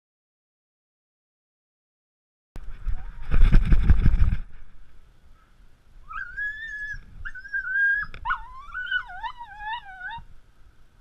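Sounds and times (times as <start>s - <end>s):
camera rustling and knocking: 2.6s - 4.7s
dog howling: 6.1s - 10.3s.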